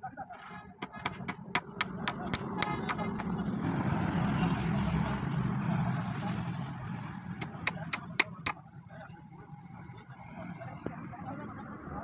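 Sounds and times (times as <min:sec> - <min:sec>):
hammer striking nail: 0:00.8 - 0:03.3, 0:07.4 - 0:08.6.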